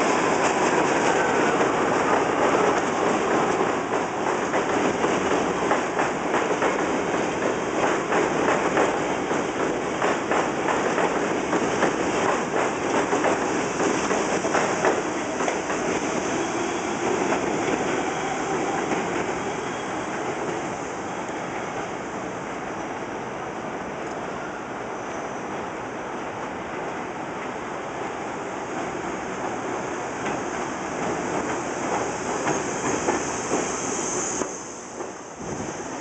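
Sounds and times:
train wheels clattering over rail joints: 0:03.2 - 0:16.0.

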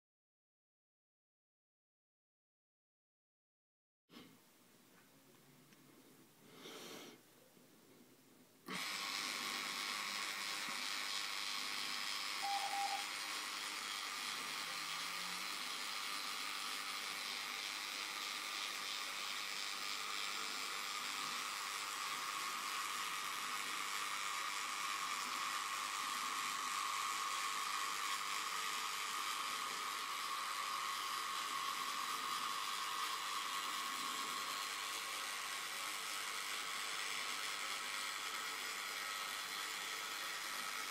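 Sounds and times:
electric motor whirring: 0:08.6 - 0:40.9.

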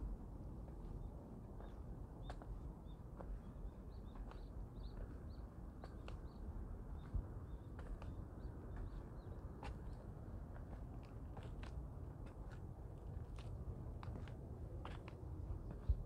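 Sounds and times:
steady low rumble: 0:00.0 - 0:16.0
small birds chirping: 0:00.9 - 0:10.1.

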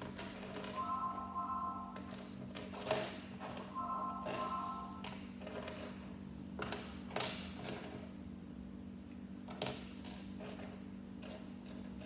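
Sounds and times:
steady low hum: 0:00.8 - 0:02.3.

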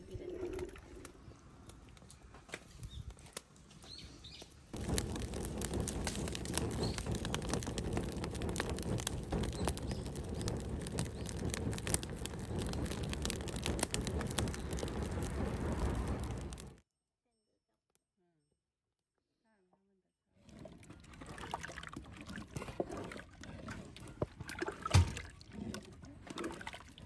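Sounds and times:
wood fire crackling: 0:01.0 - 0:16.8.

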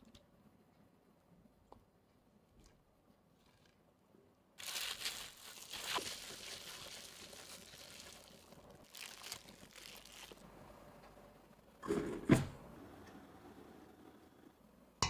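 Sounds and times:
meat squishing: 0:04.6 - 0:10.5
plastic glove crinkling: 0:04.6 - 0:10.5.

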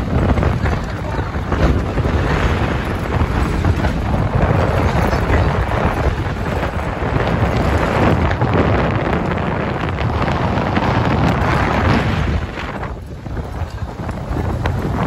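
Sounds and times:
vehicle rumble on dirt road: 0:00.0 - 0:15.0
wind buffeting microphone: 0:00.0 - 0:15.0.

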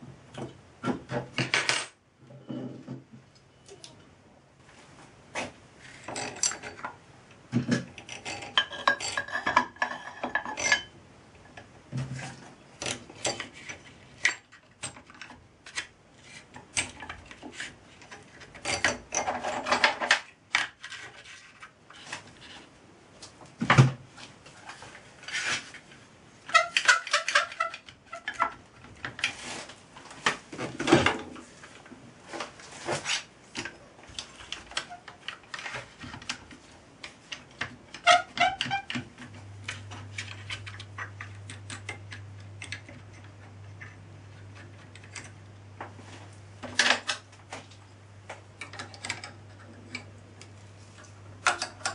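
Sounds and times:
metal parts clinking and knocking: 0:06.0 - 0:06.9, 0:07.7 - 0:10.9.

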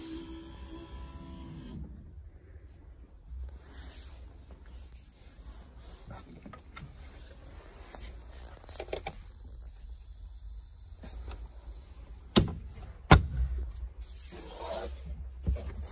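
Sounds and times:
low steady hum: 0:00.0 - 0:15.9.

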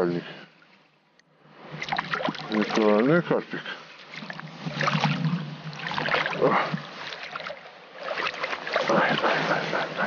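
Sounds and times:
fish thrashing water splashes: 0:01.8 - 0:03.0, 0:04.1 - 0:09.8.

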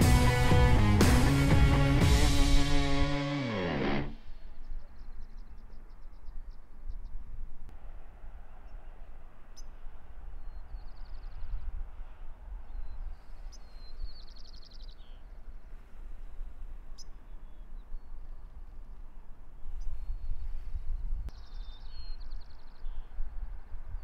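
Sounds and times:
small birds calling: 0:12.7 - 0:15.3.

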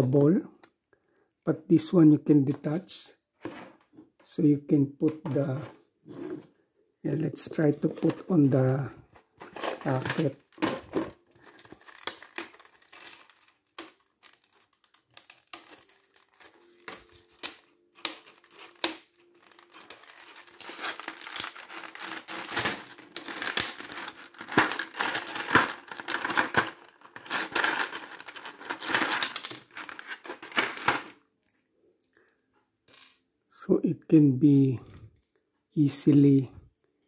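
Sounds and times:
plastic bag crinkling: 0:07.5 - 0:31.6.

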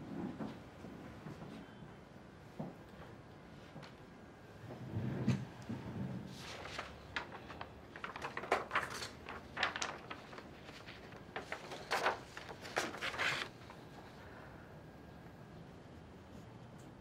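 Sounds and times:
paper pages rustling: 0:06.3 - 0:14.1.

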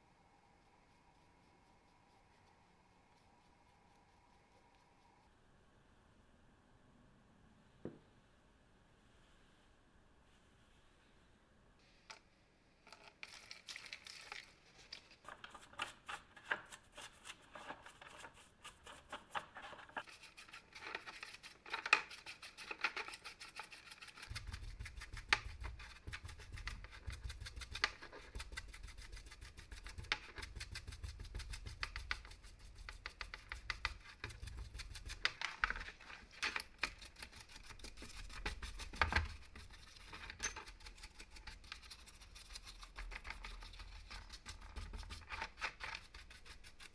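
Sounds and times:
brush scrubbing wet metal gears: 0:13.2 - 0:46.9.

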